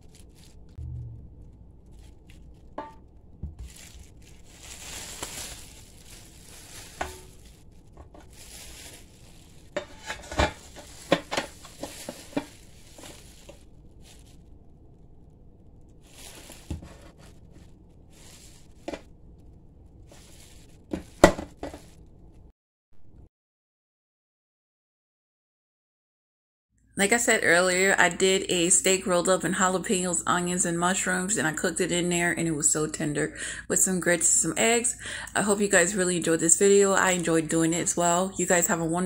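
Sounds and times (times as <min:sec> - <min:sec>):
plastic wrapping rustling: 0:00.0 - 0:00.8, 0:01.4 - 0:22.5.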